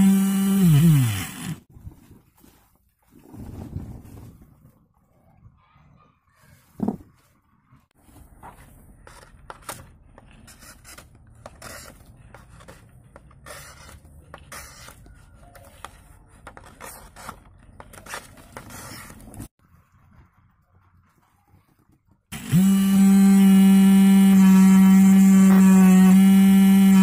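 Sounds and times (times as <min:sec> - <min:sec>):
knife cutting and scraping sheet: 0:08.4 - 0:19.5.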